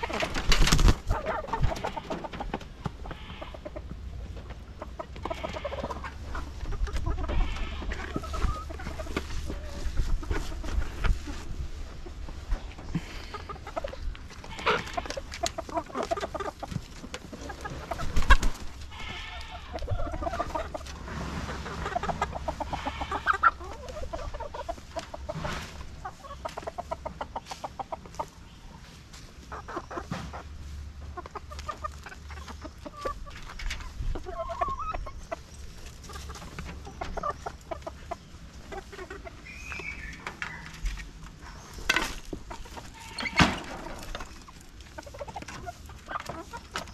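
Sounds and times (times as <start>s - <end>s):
chickens clucking: 0.0s - 46.9s.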